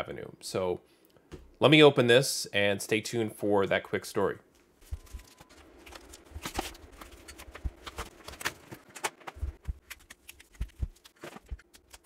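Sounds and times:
cardboard scraping and rustling: 0:04.8 - 0:11.7.

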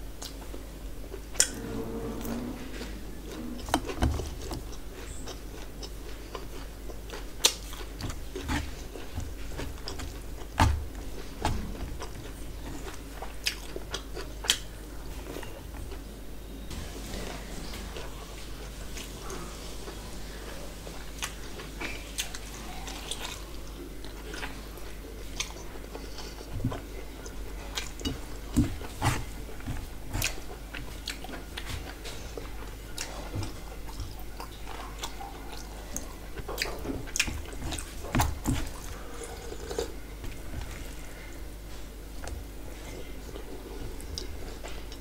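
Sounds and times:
chewing and mouth clicks: 0:03.3 - 0:16.0, 0:21.2 - 0:41.3.

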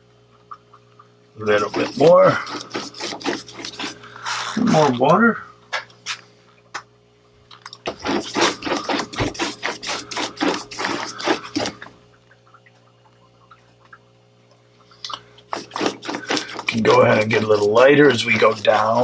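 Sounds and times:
wet paintbrush strokes on paper: 0:08.0 - 0:11.8, 0:15.5 - 0:19.0.

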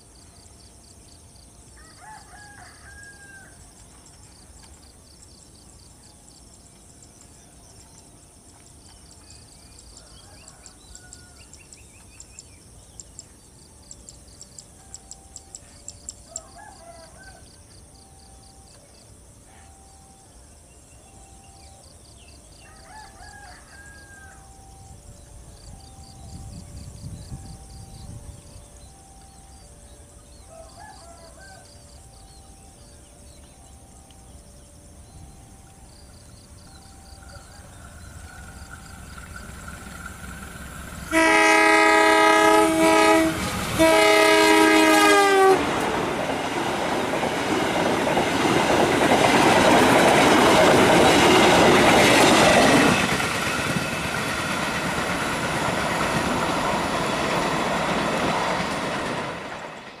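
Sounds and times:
train carriages rumbling past: 0:24.3 - 1:00.0
locomotive air horn: 0:41.0 - 0:45.8
wheels clicking over rail joints: 0:45.7 - 1:00.0.

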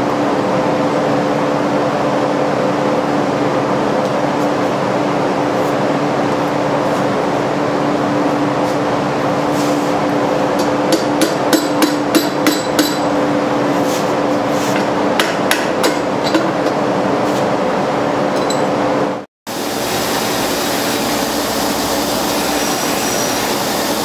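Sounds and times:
steady machine hum: 0:00.0 - 0:24.0
hammer striking steel: 0:10.6 - 0:13.2, 0:14.8 - 0:16.8.

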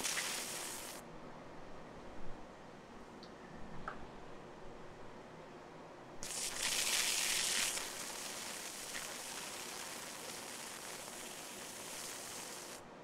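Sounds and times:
electric arcs hissing and sizzling: 0:00.0 - 0:01.0, 0:06.2 - 0:12.9.

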